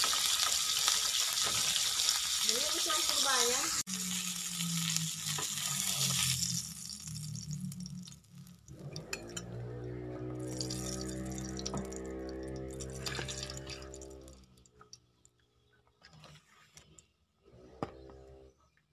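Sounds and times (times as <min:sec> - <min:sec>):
oil sizzling in frying pan: 0:00.0 - 0:09.5, 0:10.3 - 0:14.3
oil spitting and crackling: 0:00.0 - 0:09.7, 0:10.3 - 0:15.1.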